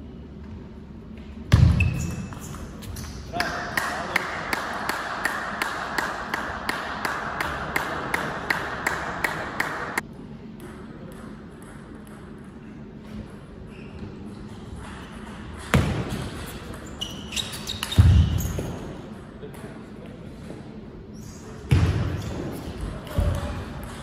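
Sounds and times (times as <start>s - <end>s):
table tennis ball bouncing: 10.6s - 12.6s, 23.1s - 24.0s.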